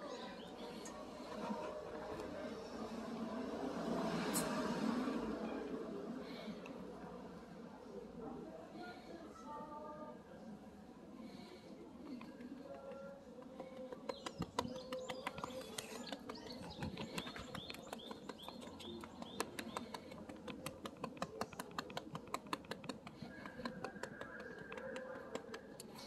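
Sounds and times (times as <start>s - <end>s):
hand patting and rubbing cat: 12.8s - 26.0s.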